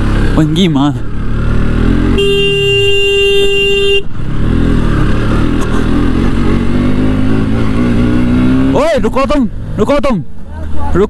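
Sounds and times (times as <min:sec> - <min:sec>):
motorcycle engine running: 0:00.0 - 0:10.6
road and wind noise: 0:00.0 - 0:11.0
motorcycle horn blast: 0:02.1 - 0:04.1.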